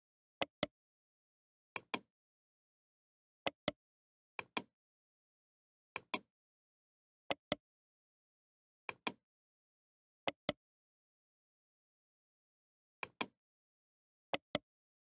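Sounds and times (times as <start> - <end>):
computer mouse clicking: 1.8 - 2.1, 8.9 - 9.2.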